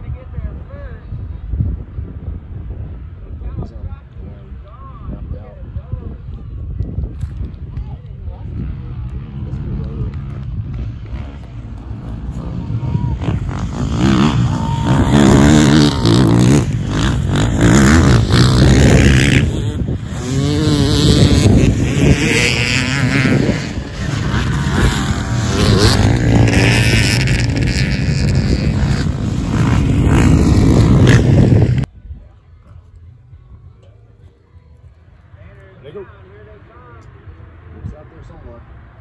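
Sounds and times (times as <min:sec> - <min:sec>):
dirt bike engines revving: 0:07.0 - 0:31.9
dirt bike passing close: 0:08.3 - 0:31.9.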